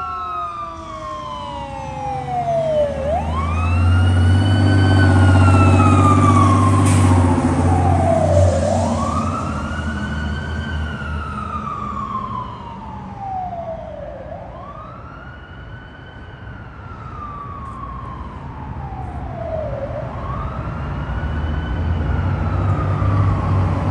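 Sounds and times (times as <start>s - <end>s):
fire engine siren wailing: 0.0s - 23.9s.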